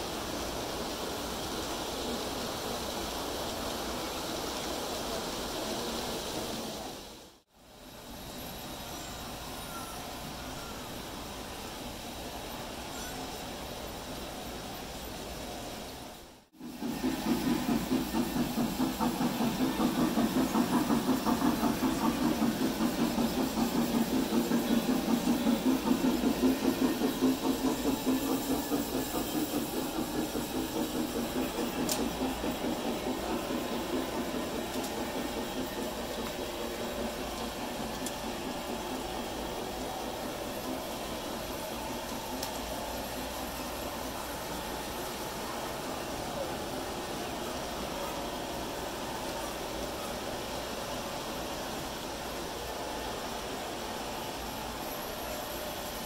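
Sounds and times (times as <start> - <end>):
wheels clattering over rails: 16.6 - 44.1
model train motor whir: 16.8 - 45.0.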